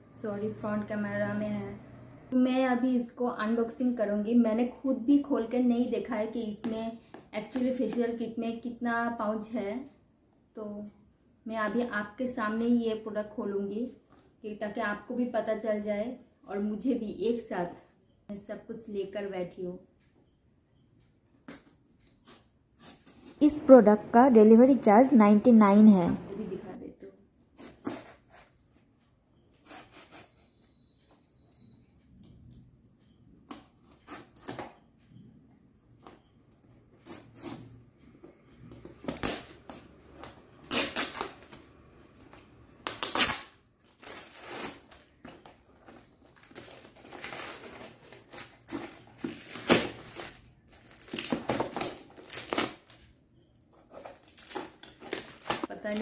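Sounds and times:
knife slitting packing tape: 0:40.6 - 0:41.6, 0:42.8 - 0:45.0.

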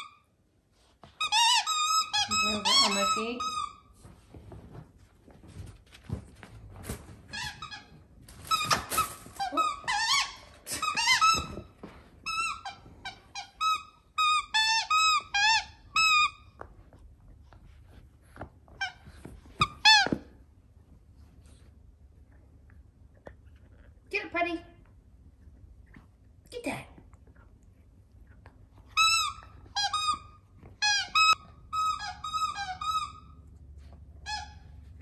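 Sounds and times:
squeaky toy squeaking: 0:01.2 - 0:03.9, 0:07.3 - 0:16.4, 0:29.0 - 0:33.4, 0:34.2 - 0:34.8.

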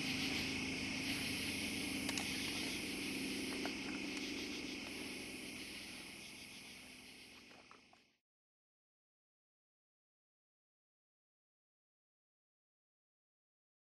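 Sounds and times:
faint low drone: 0:00.0 - 0:08.0
crickets chirping: 0:00.0 - 0:08.2.

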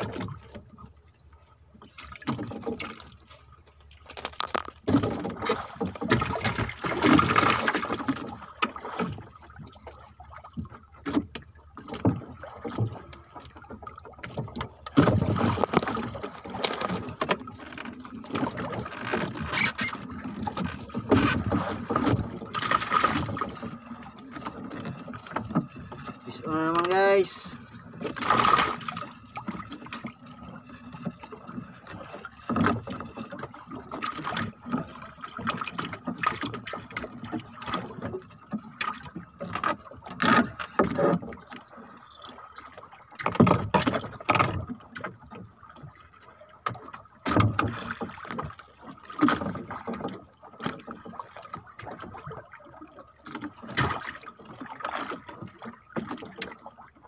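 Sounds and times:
water splashing: 0:01.7 - 0:57.0
knocks on wooden boat: 0:15.0 - 0:15.9.

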